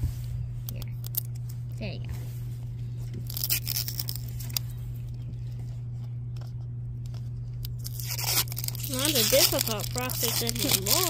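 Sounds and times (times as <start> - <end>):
steady low hum: 0.0 - 11.0
plastic crinkles and scratches: 3.0 - 11.0
plastic film tearing: 3.2 - 4.6, 7.6 - 11.0.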